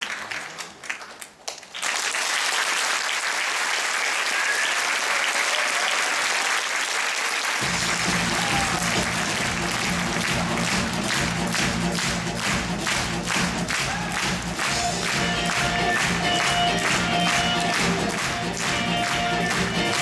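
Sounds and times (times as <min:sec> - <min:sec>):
audience applauding: 0:00.0 - 0:20.0
music with heavy bass: 0:07.6 - 0:20.0.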